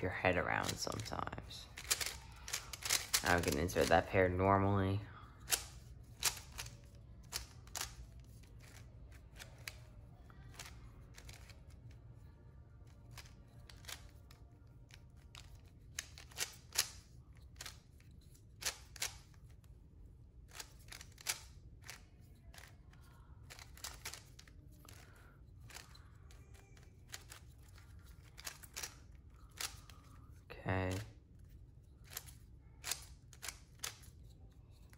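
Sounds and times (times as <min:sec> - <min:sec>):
plastic puzzle cube clicking: 0:01.7 - 0:03.9, 0:05.4 - 0:09.8, 0:10.5 - 0:11.7, 0:13.0 - 0:19.4, 0:20.5 - 0:30.2, 0:32.0 - 0:34.9.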